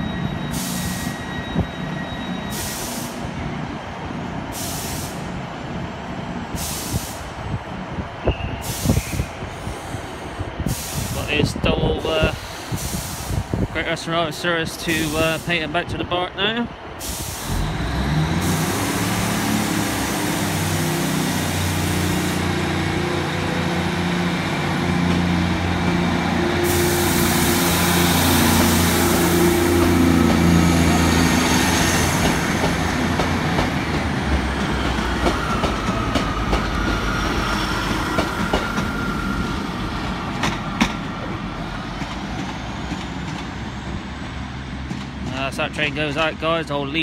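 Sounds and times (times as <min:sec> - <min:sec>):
diesel train engines working hard: 0:00.0 - 0:47.0
train wheels clicking over rail joints: 0:28.5 - 0:39.1, 0:40.0 - 0:43.7, 0:44.7 - 0:46.3.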